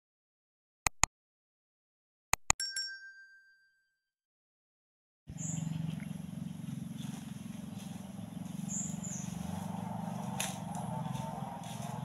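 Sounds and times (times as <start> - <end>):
high bird chirps: 5.3 - 9.8
low hum: 5.3 - 12.0.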